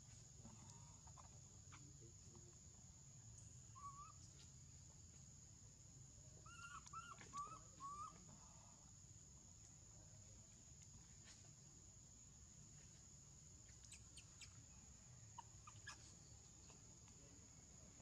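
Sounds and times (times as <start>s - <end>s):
high insect drone: 0.0s - 18.0s
faint animal chirps: 0.4s - 2.2s, 3.2s - 4.6s, 6.4s - 8.9s, 13.5s - 17.7s.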